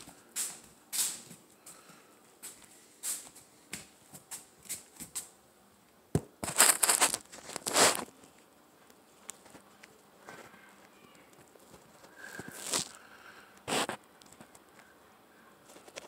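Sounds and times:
rustling and crinkling handling: 0:06.2 - 0:13.0.

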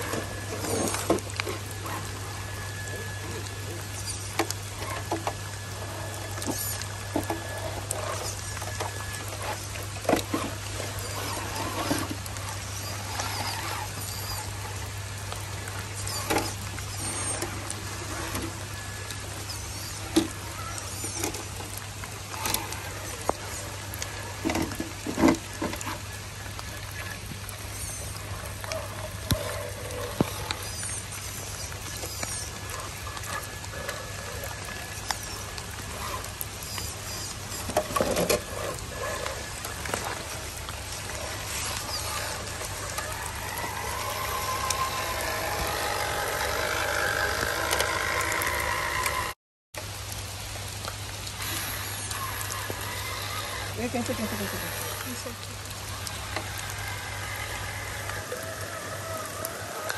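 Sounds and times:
electric motor and gears whining: 0:00.0 - 0:59.9
tyres scrabbling against stone: 0:27.8 - 0:49.4.

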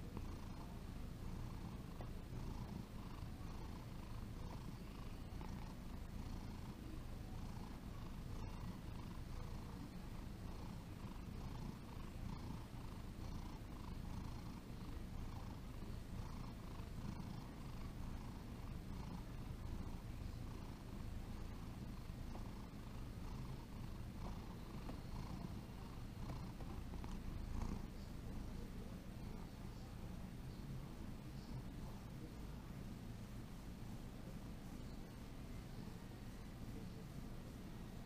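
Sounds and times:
cat purring: 0:00.0 - 0:38.0.

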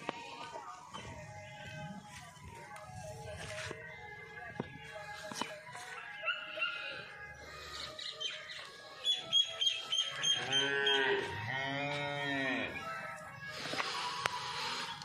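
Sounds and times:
cow mooing: 0:10.3 - 0:12.8.

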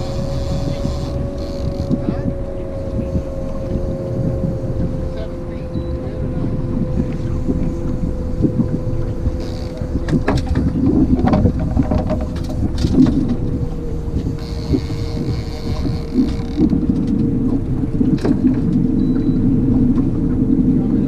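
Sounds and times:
outboard motor humming: 0:00.0 - 0:21.0
wind on microphone: 0:00.0 - 0:21.0
gear clicks and knocks: 0:09.1 - 0:18.9.

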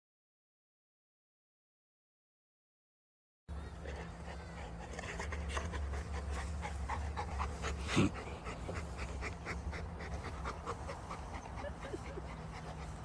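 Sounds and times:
dog panting: 0:03.8 - 0:13.0.

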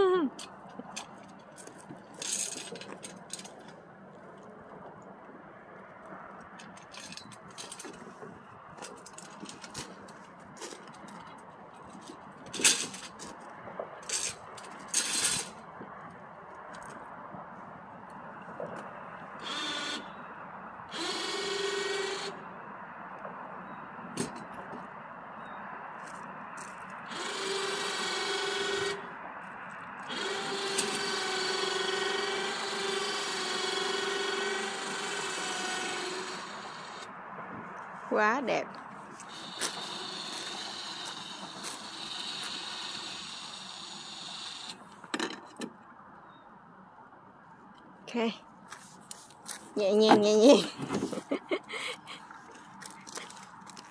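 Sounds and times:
metal scraping on gravel: 0:00.9 - 0:03.8, 0:06.6 - 0:13.4, 0:14.0 - 0:15.7, 0:39.0 - 0:45.5
metal parts clinking and rattling: 0:02.2 - 0:03.7, 0:06.6 - 0:08.0
electric winch motor running: 0:19.4 - 0:20.2, 0:20.9 - 0:22.4, 0:27.0 - 0:29.2, 0:30.0 - 0:37.1, 0:39.2 - 0:44.8.

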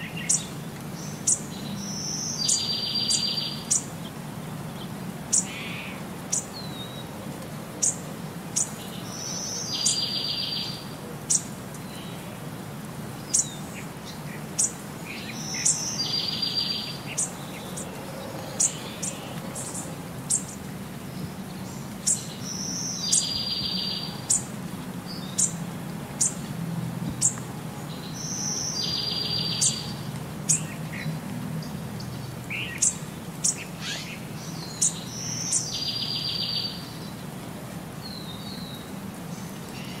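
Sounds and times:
bird chirping: 0:00.0 - 0:03.9, 0:08.6 - 0:12.2, 0:13.2 - 0:25.6, 0:27.2 - 0:37.2.

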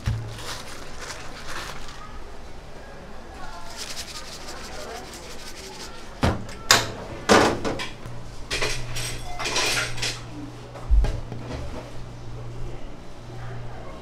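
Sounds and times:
dishes and utensils clinking: 0:07.7 - 0:10.3.

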